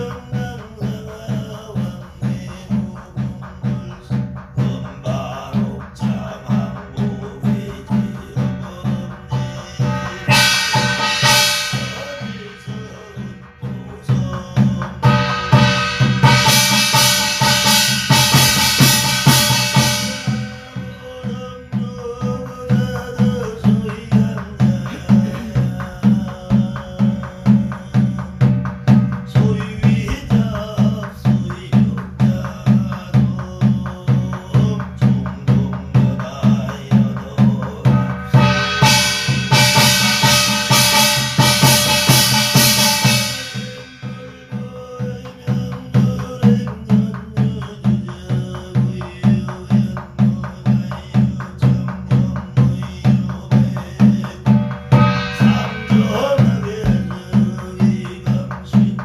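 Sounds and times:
barrel drum beating: 0:00.0 - 0:59.0
man chanting: 0:00.0 - 0:59.0
metallic gong ringing: 0:09.8 - 0:22.0, 0:37.9 - 0:44.7, 0:54.5 - 0:58.5.

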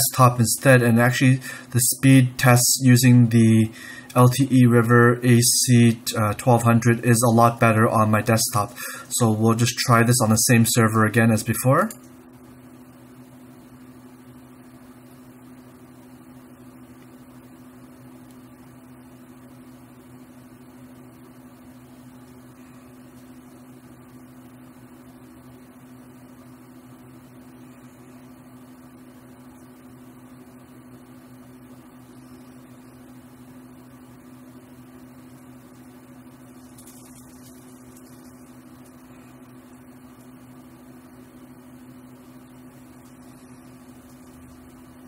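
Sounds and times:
low machine hum: 0:00.0 - 0:45.0.

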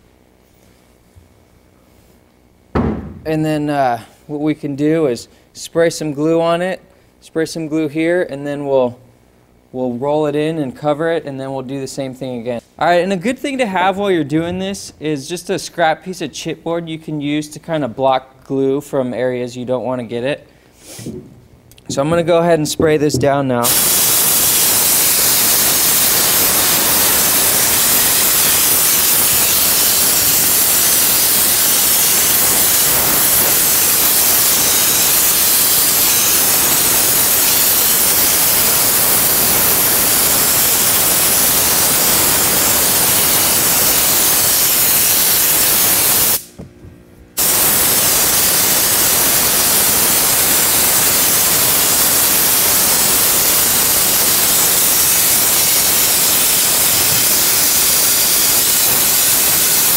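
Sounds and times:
spray gun hissing: 0:20.8 - 0:21.2, 0:23.6 - 0:46.5, 0:47.4 - 0:59.9.

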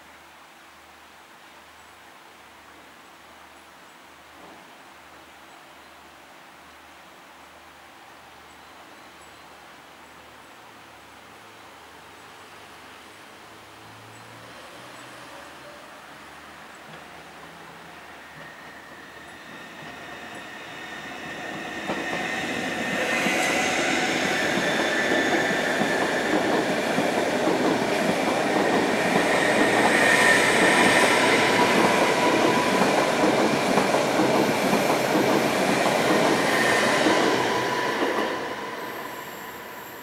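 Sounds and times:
electric train passing: 0:13.9 - 0:40.0
high whine of train: 0:13.9 - 0:40.0.

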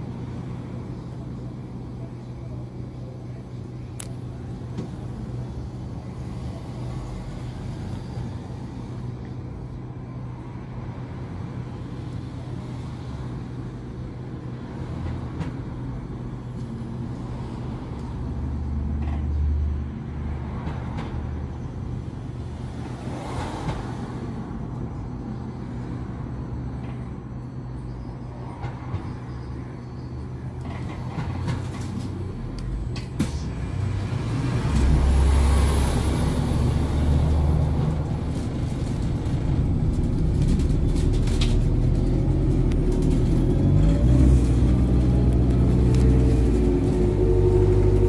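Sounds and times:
bus engine drone: 0:00.0 - 0:48.0
rising motor whine: 0:43.5 - 0:48.0.

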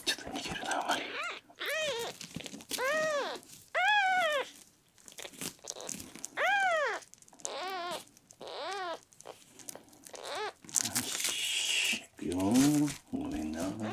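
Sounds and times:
kitten mewing: 0:00.6 - 0:04.6, 0:05.2 - 0:09.4, 0:10.1 - 0:12.0.

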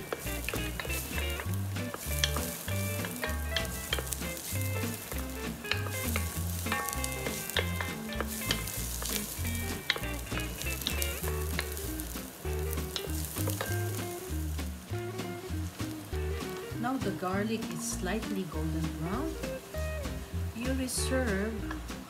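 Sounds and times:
spatula scraping and tapping pot: 0:00.0 - 0:14.9
garlic sizzling in hot oil: 0:00.0 - 0:22.0
soft background music: 0:00.0 - 0:22.0.

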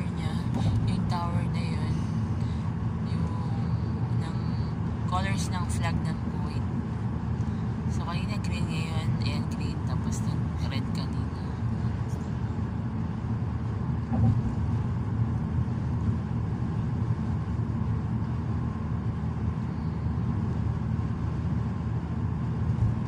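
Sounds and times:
car cabin road rumble: 0:00.0 - 0:23.0
short thump: 0:14.1 - 0:14.6.

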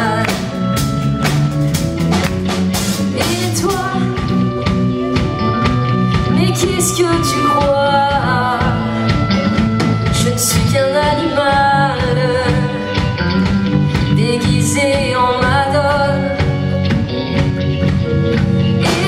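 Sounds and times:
woman singing: 0:00.0 - 0:00.8, 0:03.1 - 0:05.2, 0:05.9 - 0:13.2, 0:13.9 - 0:16.9, 0:18.8 - 0:19.0
pop-rock band playing: 0:00.0 - 0:19.0.

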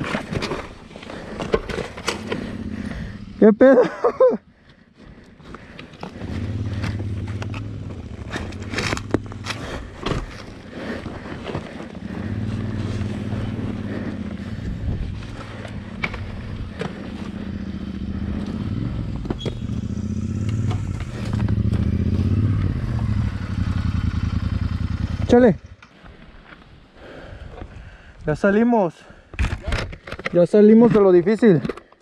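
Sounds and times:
parts rattling: 0:00.0 - 0:03.1
motorcycle engine at low revs: 0:00.0 - 0:04.4, 0:05.1 - 0:25.9
stones knocking and scraping: 0:06.8 - 0:12.0.

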